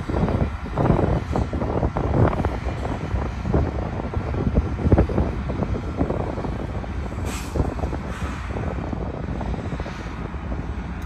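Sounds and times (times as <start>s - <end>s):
wind on microphone: 0.0s - 11.0s
short hiss: 7.2s - 7.6s.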